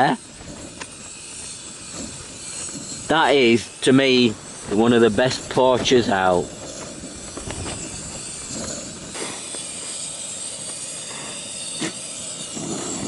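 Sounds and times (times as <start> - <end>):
gas stove burner hissing: 0.0 - 13.0.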